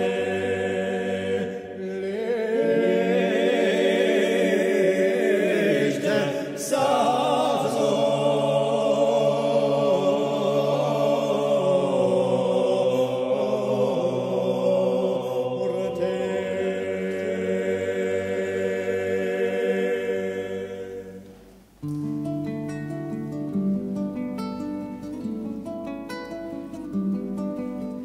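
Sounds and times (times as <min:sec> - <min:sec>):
choir singing a cappella: 0:00.0 - 0:21.5
strummed acoustic guitar: 0:21.8 - 0:28.0.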